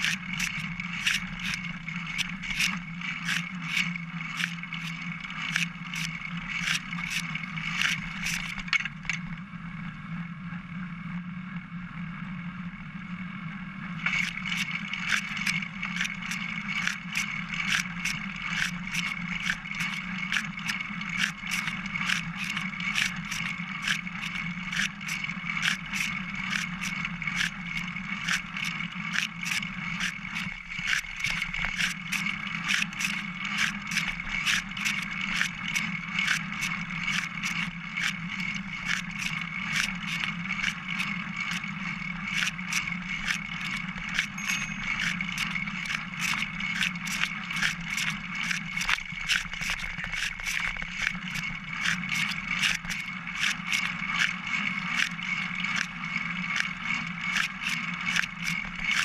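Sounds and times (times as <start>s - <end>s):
bicycle riding hum: 0.0s - 59.0s
regular clicking: 14.0s - 59.0s.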